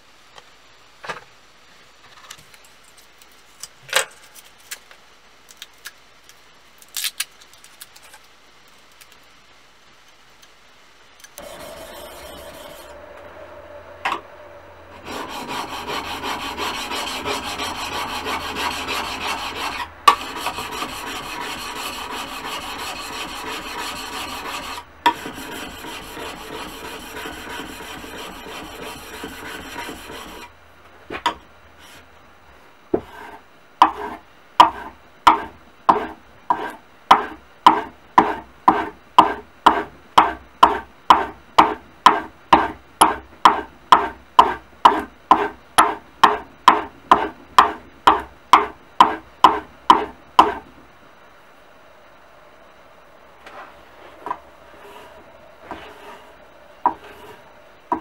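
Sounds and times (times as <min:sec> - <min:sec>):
chisel scraping on sharpening stone: 0:11.4 - 0:13.0, 0:15.1 - 0:30.5, 0:56.9 - 0:57.4.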